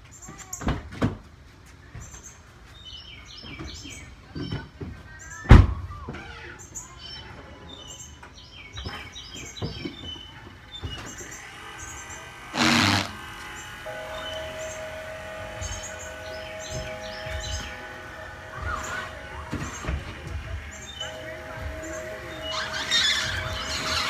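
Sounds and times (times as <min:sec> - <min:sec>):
small birds chirping: 0:06.3 - 0:14.9.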